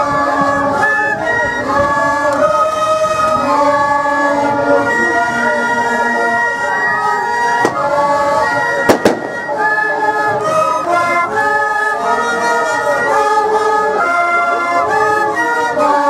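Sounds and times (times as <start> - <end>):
wooden flutes playing melody: 0.0 - 16.0
sharp crack: 8.9 - 9.5.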